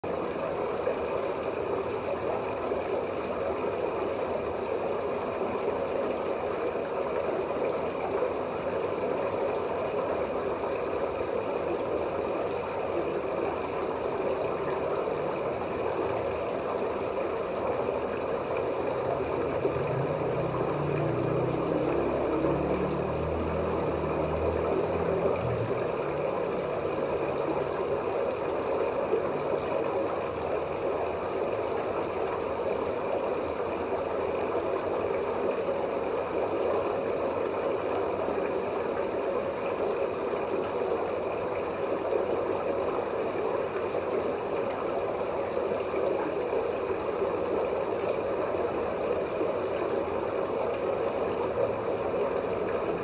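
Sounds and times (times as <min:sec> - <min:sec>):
muffled underwater rush: 0:00.1 - 0:53.0
low rumbling: 0:19.0 - 0:27.7.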